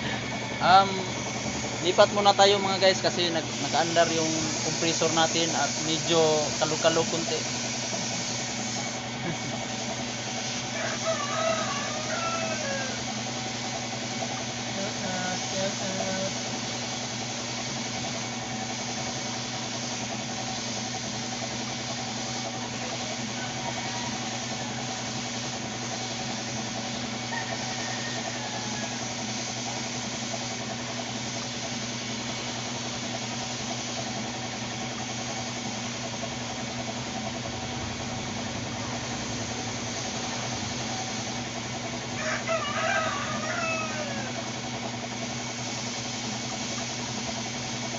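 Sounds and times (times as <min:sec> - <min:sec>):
air compressor humming: 0:00.0 - 0:47.9
spray gun hissing: 0:00.0 - 0:47.9
rooster crowing: 0:10.5 - 0:13.2, 0:23.3 - 0:25.0, 0:27.2 - 0:29.3, 0:42.1 - 0:44.5.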